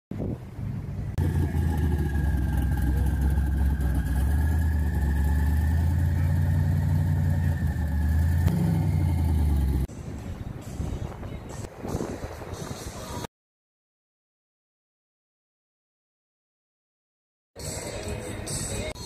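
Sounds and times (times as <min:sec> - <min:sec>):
car engine idling: 0:00.9 - 0:09.9.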